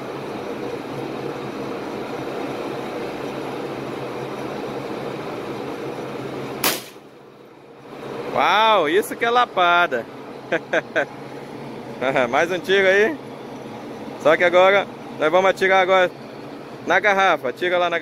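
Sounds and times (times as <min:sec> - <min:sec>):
background hum: 0:00.0 - 0:18.0
rifle shot: 0:06.6 - 0:07.0.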